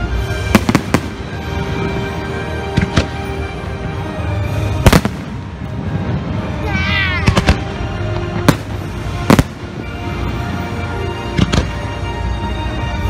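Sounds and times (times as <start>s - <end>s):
music playing: 0.0s - 13.0s
fireworks bursting with bangs: 0.1s - 2.1s, 2.7s - 3.3s, 4.6s - 6.4s, 7.1s - 10.4s, 11.3s - 12.0s.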